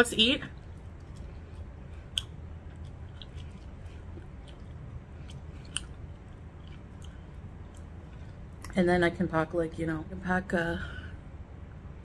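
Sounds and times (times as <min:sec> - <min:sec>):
steady low hum: 0:00.0 - 0:12.0
chewing and biting food: 0:00.6 - 0:08.7.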